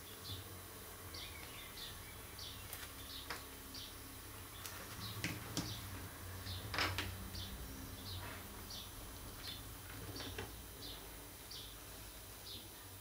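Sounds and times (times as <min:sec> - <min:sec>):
bird chirping: 0:01.1 - 0:05.9.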